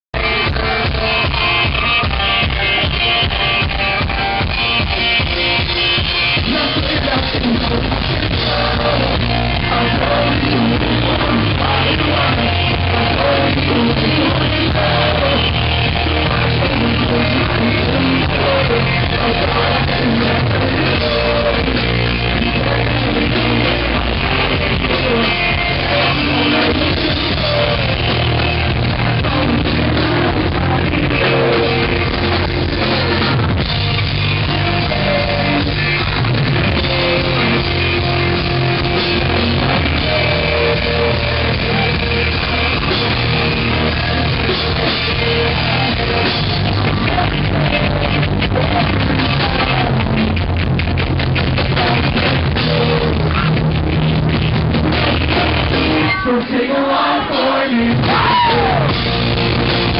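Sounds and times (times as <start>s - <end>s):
bass guitar: 0.0s - 59.9s
drum kit: 0.1s - 56.3s, 57.3s - 59.9s
electric guitars: 0.2s - 59.9s
lead singer's voice: 0.2s - 59.9s.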